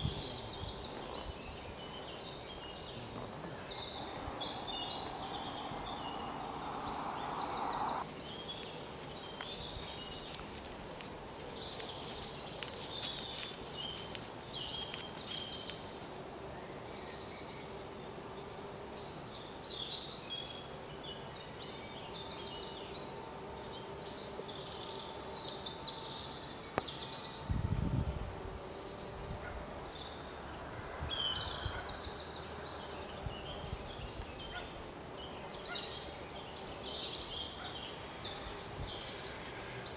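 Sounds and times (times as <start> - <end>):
small birds chirping: 0.0 - 16.0
low rumble: 3.5 - 8.0.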